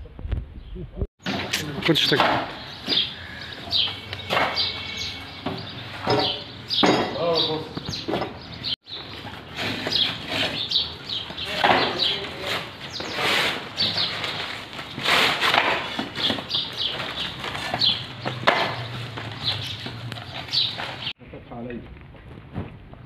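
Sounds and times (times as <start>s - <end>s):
small birds chirping: 0.5s - 21.2s
clay bricks knocking and scraping: 1.2s - 3.1s, 9.0s - 21.2s.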